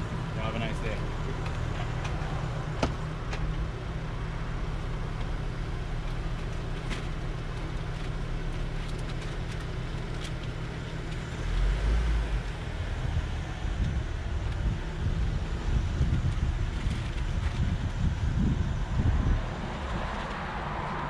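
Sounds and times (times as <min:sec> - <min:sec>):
car engine and road rumble: 0:00.0 - 0:21.0.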